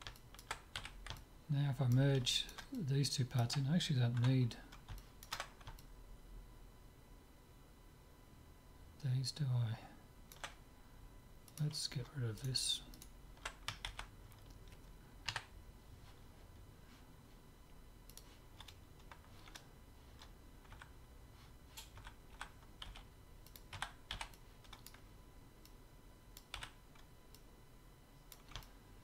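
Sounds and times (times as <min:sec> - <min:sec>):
keyboard and mouse clicks: 0:00.0 - 0:01.3, 0:04.2 - 0:05.9, 0:21.8 - 0:25.0, 0:28.3 - 0:28.7.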